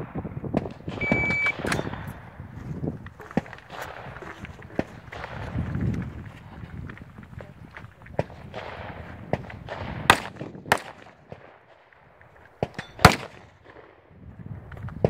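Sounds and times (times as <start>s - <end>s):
rifle shots: 0.0s - 2.5s, 3.3s - 5.8s, 8.2s - 14.0s
footsteps on sandy ground: 1.1s - 10.0s.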